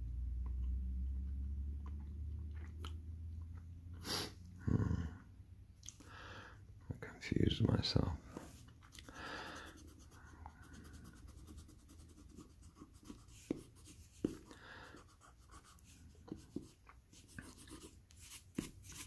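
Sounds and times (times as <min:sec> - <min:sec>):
pencil scratching on paper: 0:09.6 - 0:19.0.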